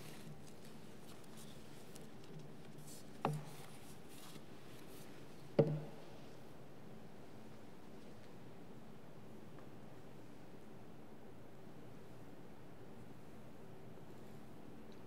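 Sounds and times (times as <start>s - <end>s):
knocks on wooden lectern: 5.6s - 6.0s.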